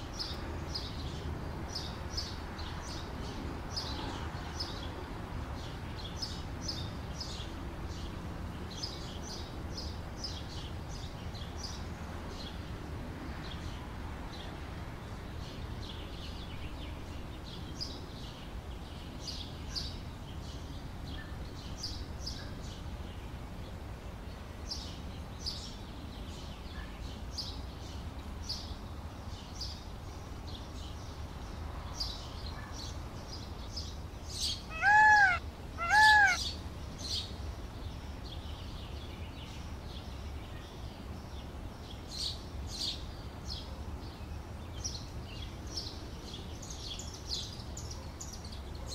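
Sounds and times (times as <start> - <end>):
small birds chirping: 29.3 - 41.0
peacock wailing calls: 34.7 - 36.5.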